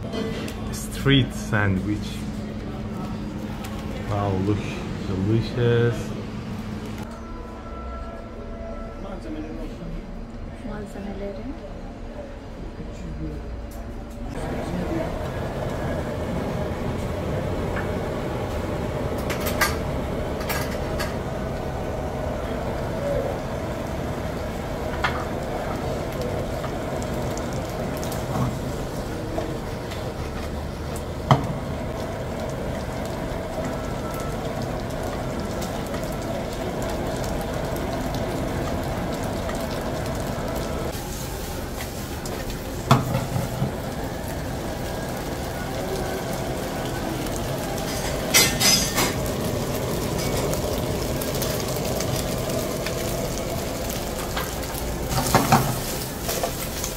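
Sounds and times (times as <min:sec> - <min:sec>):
sausage frying in a pan: 0:16.6 - 0:56.9
pan and utensils knocking: 0:47.9 - 0:49.2.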